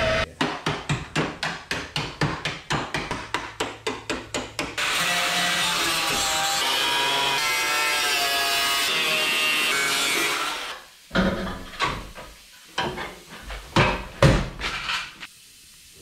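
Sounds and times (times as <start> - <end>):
metal knocks and clanks: 11.1 - 15.2.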